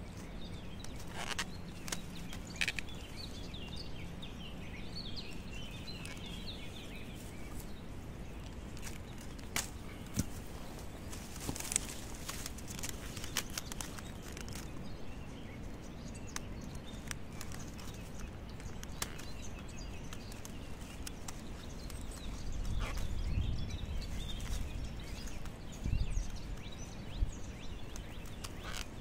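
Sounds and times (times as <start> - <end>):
plastic mesh rustling: 8.6 - 14.8
small clicks: 11.1 - 14.8, 16.2 - 22.3.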